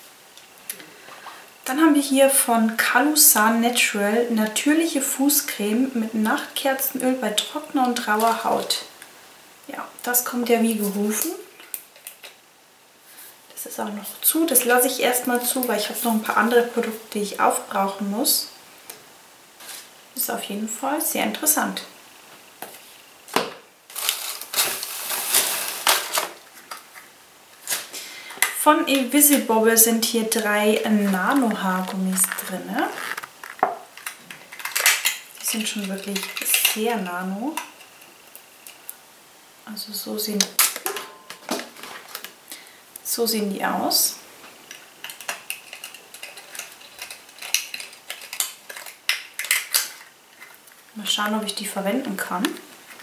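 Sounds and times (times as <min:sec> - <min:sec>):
packaging rustling and crinkling: 0:23.9 - 0:28.0, 0:30.4 - 0:36.8, 0:40.6 - 0:42.5, 0:44.4 - 0:51.0.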